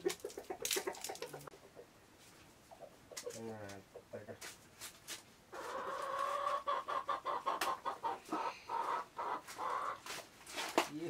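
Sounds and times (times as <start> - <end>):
chicken clucking: 0.0 - 2.0, 2.6 - 4.5, 5.5 - 10.2.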